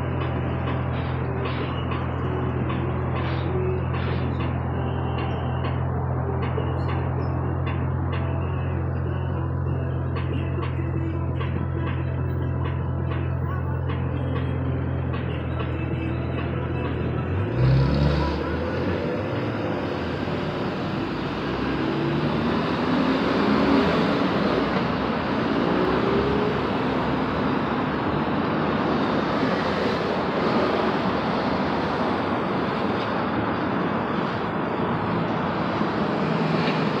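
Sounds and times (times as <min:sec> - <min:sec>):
city street traffic: 0:00.0 - 0:37.0
car engine accelerating: 0:17.2 - 0:37.0.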